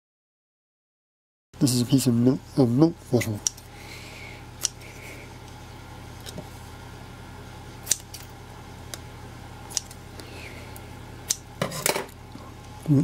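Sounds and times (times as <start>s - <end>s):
scissors snipping plastic: 7.8s - 8.3s, 9.7s - 10.0s.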